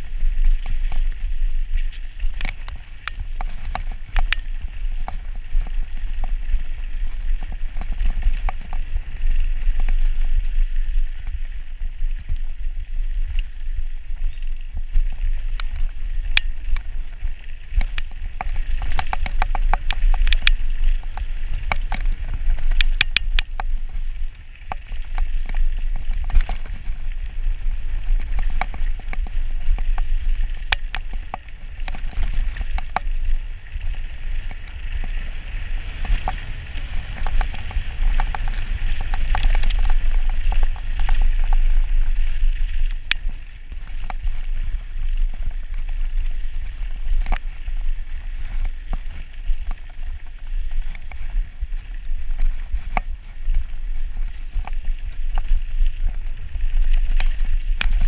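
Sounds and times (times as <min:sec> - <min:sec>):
bike chain and frame rattling: 0:00.0 - 0:58.0
tyres rolling over loose dirt: 0:00.0 - 0:58.0
wind buffeting microphone: 0:00.0 - 0:58.0.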